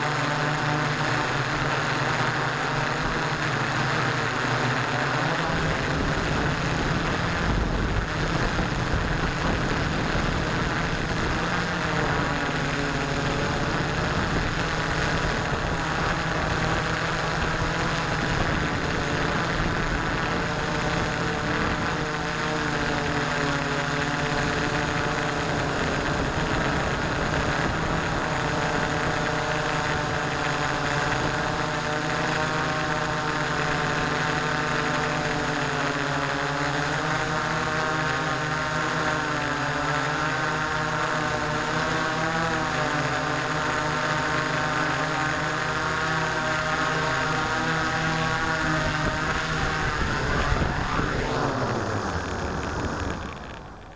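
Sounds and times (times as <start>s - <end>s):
drone motors and propellers: 0.0s - 53.9s.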